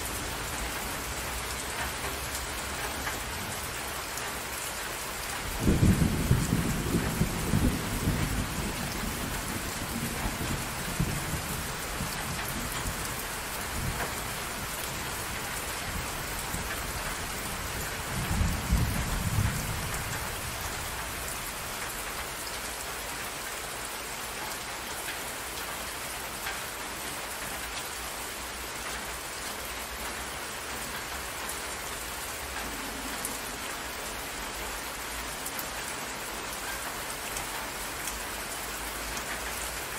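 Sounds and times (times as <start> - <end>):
rain falling on water: 0.0 - 39.9
thunder rumbling: 5.5 - 21.6.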